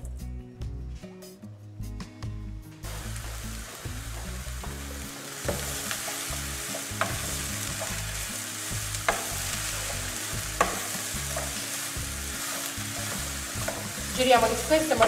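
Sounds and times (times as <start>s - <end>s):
eggplant sizzling in oil: 2.8s - 15.0s
wooden spoon knocking on pan: 4.1s - 8.0s, 9.0s - 11.7s, 12.4s - 15.0s.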